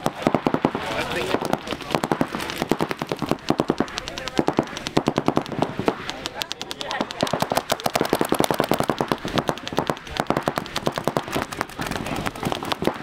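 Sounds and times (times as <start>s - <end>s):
paintball markers firing: 0.0s - 13.0s.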